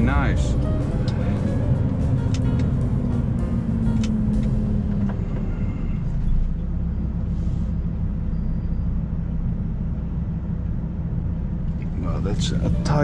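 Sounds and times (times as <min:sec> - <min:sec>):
diesel truck engine idling: 0:00.0 - 0:13.0.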